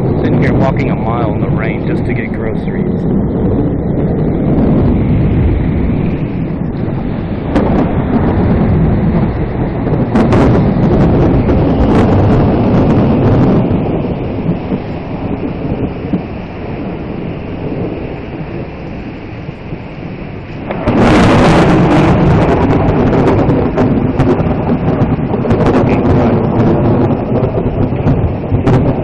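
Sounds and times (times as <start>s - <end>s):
loud crack of thunder: 0.0s - 29.0s
low thunder rumble: 0.0s - 29.0s
rain: 0.0s - 29.0s.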